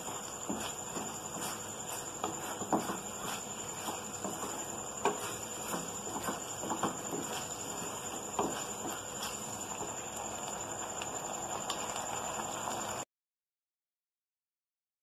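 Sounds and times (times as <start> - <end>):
spatula knocking against pan: 0.0 - 9.9
wooden spatula scraping a pan: 0.0 - 10.0.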